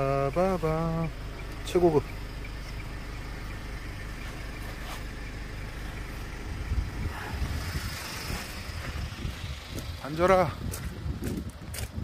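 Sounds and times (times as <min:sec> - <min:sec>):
vehicle cabin rumble: 0:00.0 - 0:12.0
gusty rumbling: 0:05.6 - 0:12.0.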